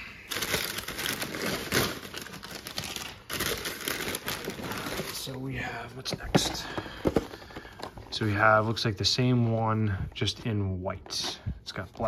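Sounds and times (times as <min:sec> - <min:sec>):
packing paper crinkling: 0:00.2 - 0:05.6.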